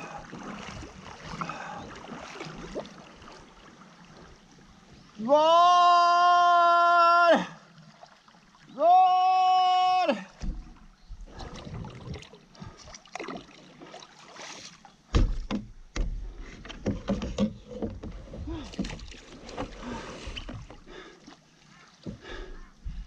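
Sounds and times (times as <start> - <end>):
water lapping at hull: 0.0 - 23.0
paddle knocking against kayak: 10.4 - 13.4, 15.1 - 20.8.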